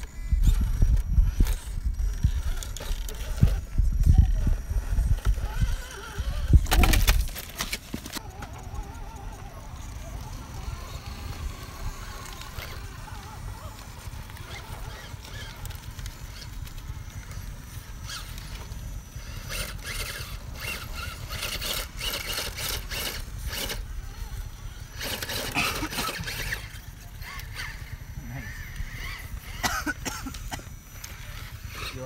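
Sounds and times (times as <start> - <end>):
wind rumbling on microphone: 0.0 - 25.0
tyres grinding over rock: 0.0 - 27.7.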